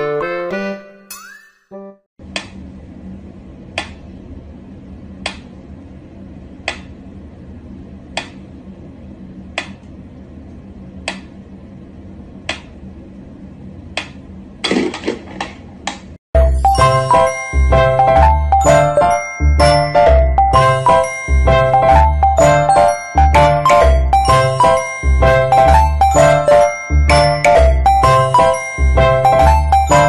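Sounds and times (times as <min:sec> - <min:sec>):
low room hum: 0:02.2 - 0:16.2.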